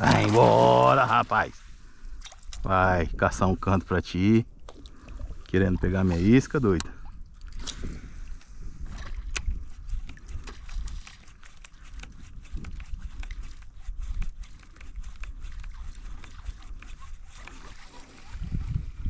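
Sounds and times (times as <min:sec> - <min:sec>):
water lapping: 0:00.0 - 0:02.7, 0:03.6 - 0:19.0
wind buffeting microphone: 0:00.0 - 0:19.0
small ticks against kayak hull: 0:09.2 - 0:18.1.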